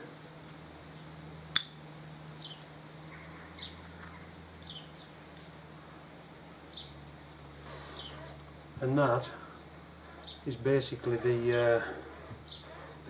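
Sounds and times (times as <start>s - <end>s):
low steady hum: 0.0s - 13.0s
sharp metallic click of pick tool: 1.6s - 1.8s.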